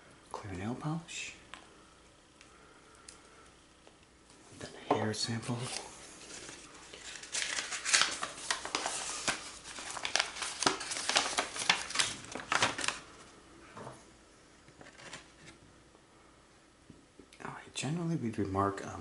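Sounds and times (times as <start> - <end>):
crinkling and rustling: 3.8 - 14.0, 14.7 - 15.6.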